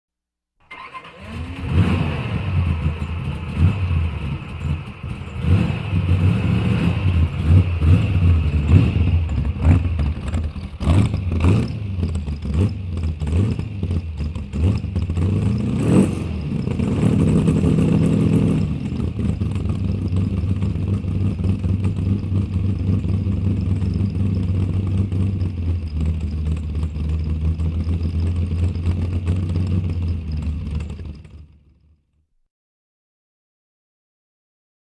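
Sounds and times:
car engine starting and revving: 0:00.6 - 0:31.6.

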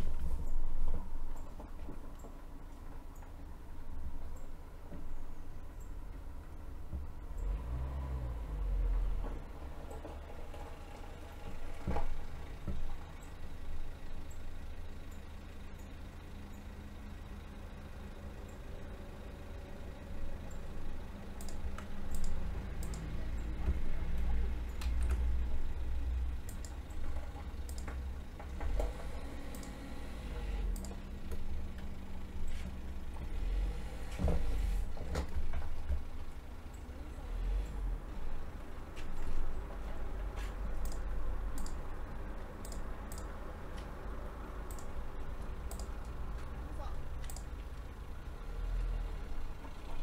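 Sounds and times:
low background rumble: 0:00.0 - 0:07.6
computer mouse clicks: 0:21.4 - 0:23.1, 0:26.4 - 0:28.0, 0:29.5 - 0:29.8, 0:30.7 - 0:31.4, 0:40.8 - 0:41.8, 0:42.6 - 0:43.9, 0:44.7 - 0:45.0, 0:45.7 - 0:46.2, 0:47.2 - 0:47.5
computer keyboard clicks: 0:42.6 - 0:43.3, 0:45.7 - 0:45.9, 0:47.2 - 0:47.5.

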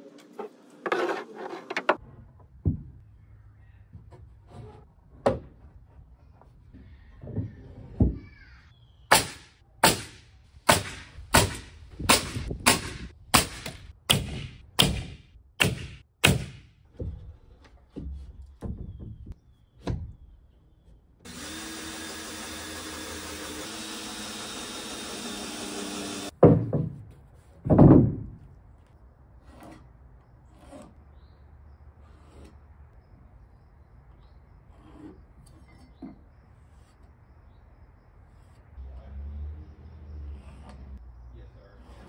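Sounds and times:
hammer striking nails into wood: 0:09.1 - 0:16.7
power tool running: 0:21.3 - 0:26.3.

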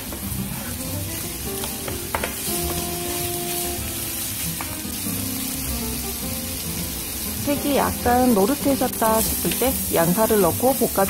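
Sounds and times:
bacon sizzling in a frying pan: 0:00.0 - 0:11.0
spatula knocking: 0:01.6 - 0:02.9.

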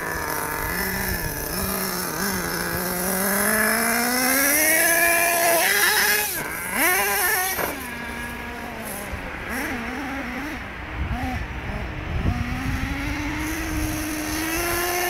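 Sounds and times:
rc truck engine revving: 0:00.0 - 0:15.0.

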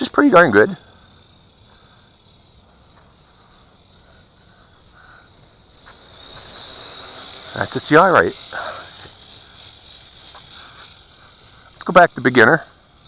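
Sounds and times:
drone propellers whining: 0:00.0 - 0:13.0.

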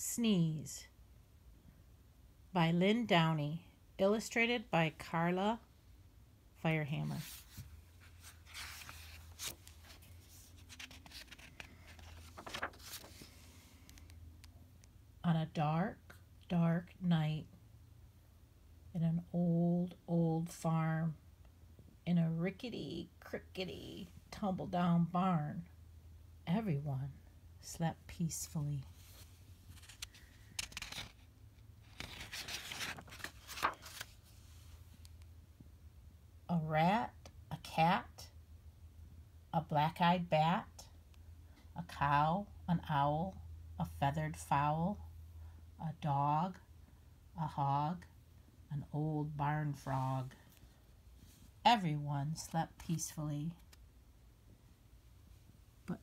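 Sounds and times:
faint low hum: 0:00.0 - 0:56.0
paper rustling and sliding: 0:07.1 - 0:14.1, 0:28.9 - 0:35.1
book page turning: 0:07.1 - 0:14.2, 0:28.9 - 0:35.2.

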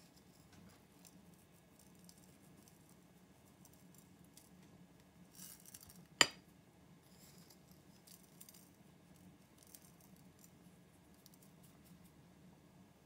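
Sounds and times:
clink against ceramic plate: 0:06.2 - 0:06.4.

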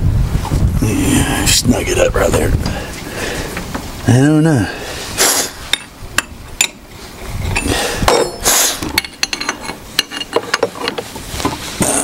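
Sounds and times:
wrenches clinking on metal fittings: 0:07.6 - 0:11.0
rustling handling noise: 0:08.8 - 0:12.0.

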